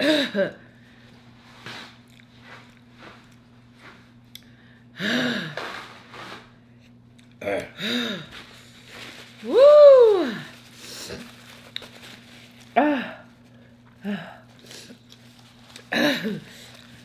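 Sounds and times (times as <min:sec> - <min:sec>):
person chewing: 0:02.0 - 0:03.4
person moaning: 0:09.5 - 0:10.5, 0:12.8 - 0:13.3, 0:14.0 - 0:14.5.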